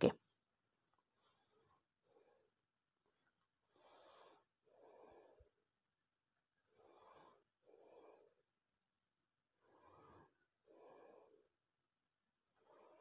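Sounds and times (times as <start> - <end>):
faint breathing: 1.0 - 2.7, 3.6 - 5.8, 6.6 - 8.6, 9.5 - 11.8, 12.5 - 13.0.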